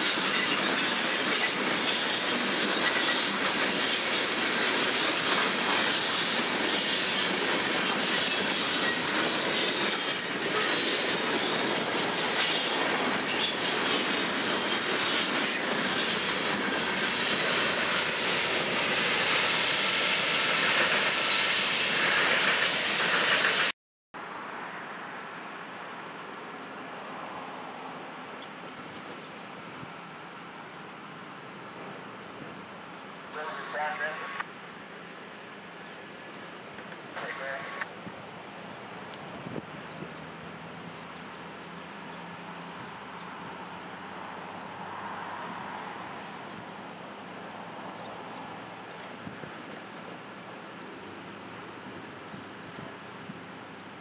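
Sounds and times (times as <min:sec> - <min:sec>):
train wheels clattering over rail joints: 0:00.0 - 0:18.7
high-pitched wheel squeal: 0:08.2 - 0:12.7.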